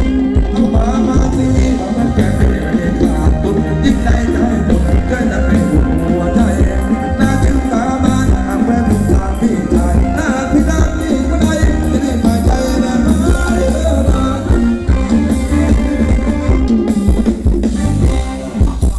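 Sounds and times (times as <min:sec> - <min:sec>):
live band dance music: 0:00.0 - 0:18.9
person singing: 0:00.0 - 0:18.9.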